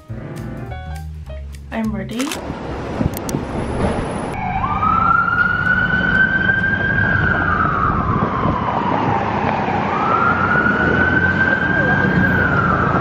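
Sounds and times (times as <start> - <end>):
street traffic rumble: 1.3 - 13.0
emergency siren wailing: 4.3 - 13.0.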